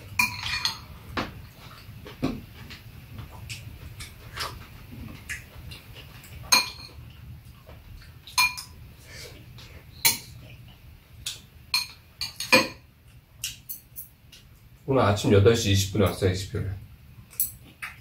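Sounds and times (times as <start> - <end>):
low steady hum: 0.0 - 18.0
utensils clinking on ceramic bowls: 0.2 - 0.9, 6.5 - 7.0, 8.3 - 8.8, 11.7 - 12.8.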